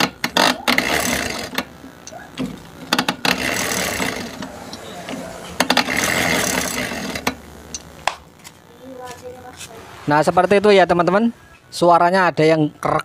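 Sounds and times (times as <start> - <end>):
gear train ratcheting: 0.0 - 7.8
gears grinding: 0.0 - 9.3.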